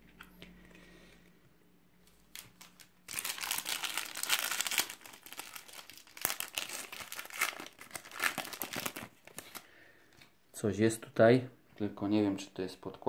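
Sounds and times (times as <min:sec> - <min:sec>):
foil wrapper crinkling and tearing: 0:02.1 - 0:09.7.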